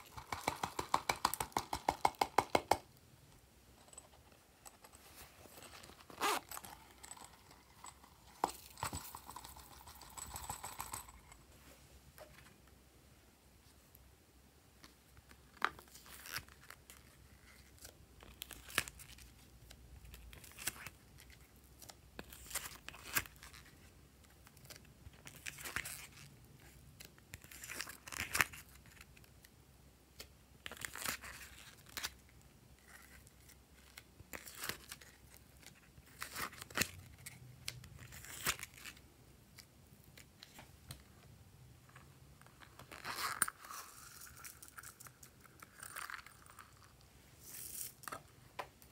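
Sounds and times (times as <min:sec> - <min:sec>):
clay and plastic crackling: 0:00.0 - 0:02.9.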